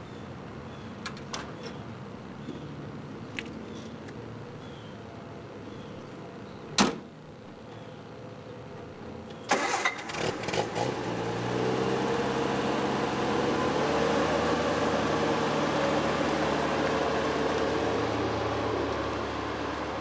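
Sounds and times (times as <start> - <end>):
car engine running: 9.9 - 20.0.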